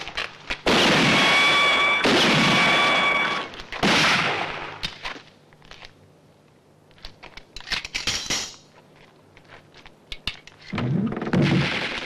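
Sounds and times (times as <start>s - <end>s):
loud echoing gunshots: 0.6s - 4.8s
steady high ringing tone: 1.0s - 3.6s.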